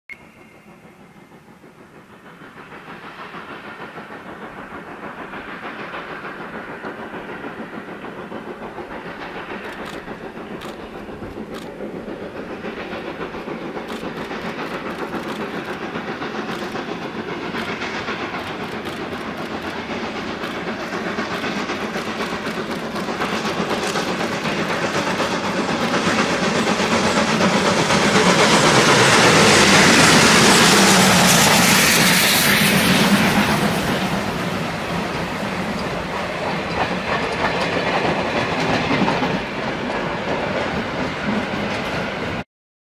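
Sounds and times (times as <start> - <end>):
steam locomotive exhaust beats: 0.1 - 42.4
sharp clicks: 9.5 - 11.8, 13.4 - 26.7.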